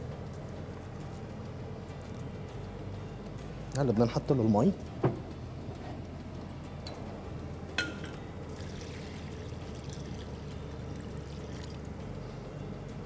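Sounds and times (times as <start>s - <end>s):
water pouring into pan: 8.5s - 11.8s.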